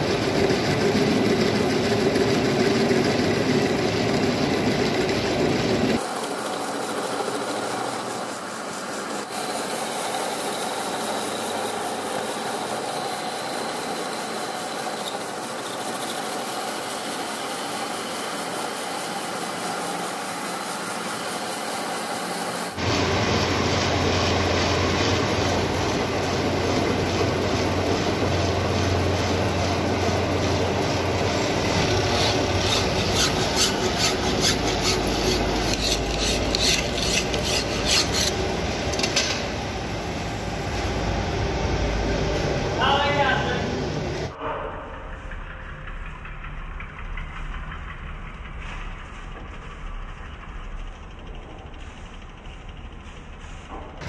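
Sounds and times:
metal lathe running: 0.0s - 43.3s
file rasping on spinning shaft: 0.3s - 22.8s, 25.1s - 39.0s.

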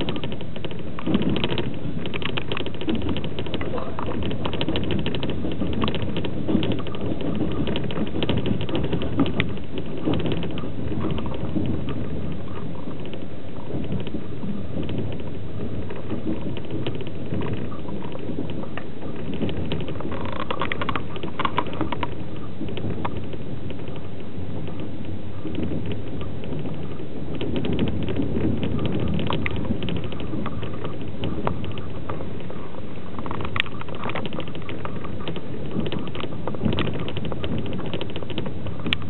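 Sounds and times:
clicks and knocks: 0.0s - 39.0s
train carriage rattling: 0.0s - 39.0s
train wheels rumbling on track: 0.0s - 39.0s.

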